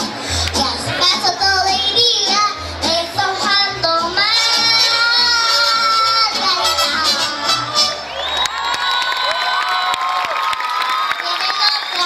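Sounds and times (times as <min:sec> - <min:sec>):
mariachi band playing: 0:00.0 - 0:08.3
boy singing a long note: 0:04.2 - 0:07.9.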